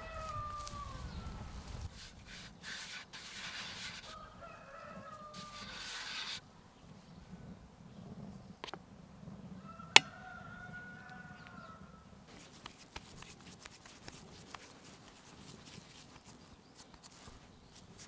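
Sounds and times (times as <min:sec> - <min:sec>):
rooster crowing: 0:00.0 - 0:01.6, 0:04.0 - 0:06.1, 0:09.6 - 0:12.2
hands rubbing crumbly dough: 0:00.0 - 0:04.3, 0:04.9 - 0:06.4, 0:12.3 - 0:18.0.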